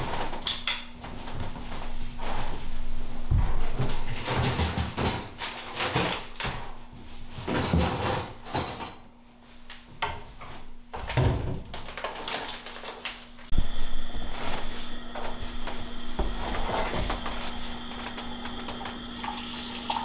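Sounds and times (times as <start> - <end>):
knocks and clatters: 3.3 - 6.7.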